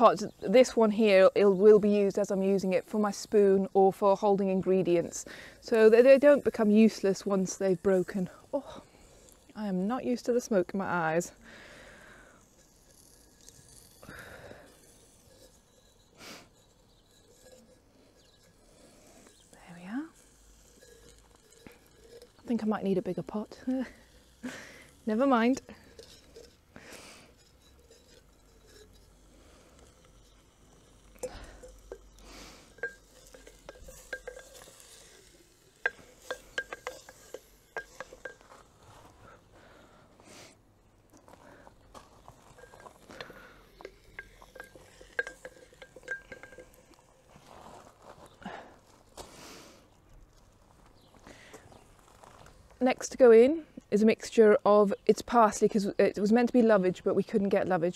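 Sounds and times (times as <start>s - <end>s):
person sniffing and breathing: 11.4s - 12.5s, 16.2s - 16.6s, 26.7s - 27.4s, 31.2s - 32.8s, 39.0s - 40.6s, 48.4s - 49.9s
spoon clinking against pot: 31.2s - 38.6s, 42.6s - 47.0s.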